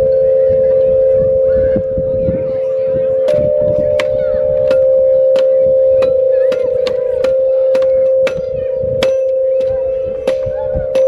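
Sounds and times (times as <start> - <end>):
metallophone struck with mallets: 2.6 - 11.0.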